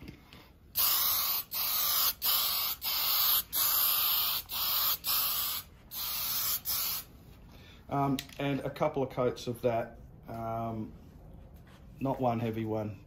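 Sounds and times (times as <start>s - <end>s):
aerosol spray can hissing: 0.8s - 7.1s.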